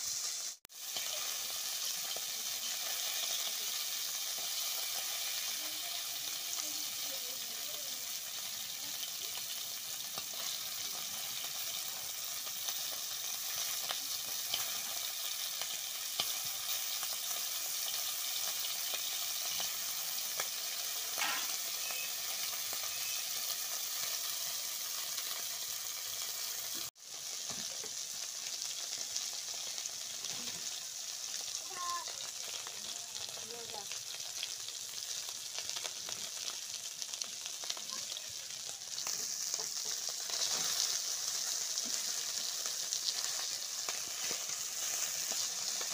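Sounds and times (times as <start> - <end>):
fish sizzling in oil: 0.0 - 45.9
metal spatula scraping wok: 21.2 - 22.3.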